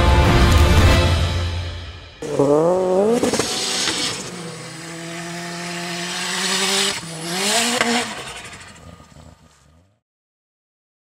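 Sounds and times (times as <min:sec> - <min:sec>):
car engine at high revs: 0:02.2 - 0:10.0
tyres spinning in snow: 0:02.2 - 0:10.0.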